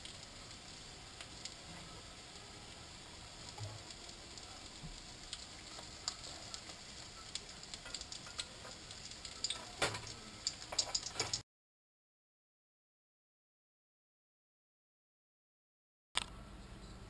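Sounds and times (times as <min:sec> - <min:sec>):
food frying in fat: 0:00.0 - 0:11.4.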